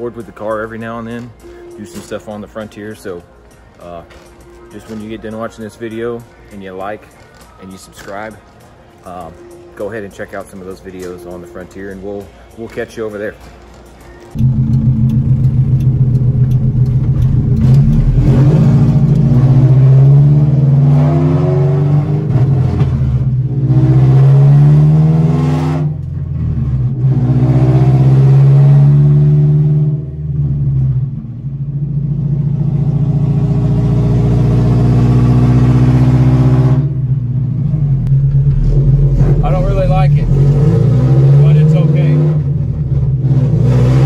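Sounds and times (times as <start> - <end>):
car engine accelerating through gears: 14.4 - 44.0.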